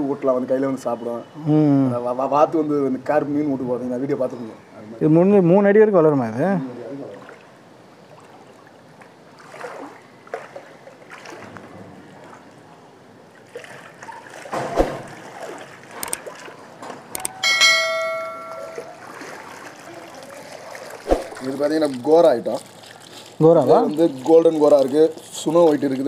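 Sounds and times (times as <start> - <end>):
water sloshing and splashing: 6.9 - 26.0
clicks: 17.1 - 17.4
bell ding: 17.2 - 19.0.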